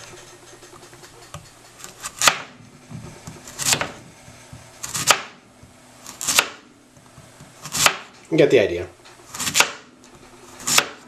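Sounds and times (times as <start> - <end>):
knife slicing on cutting board: 3.4 - 4.0.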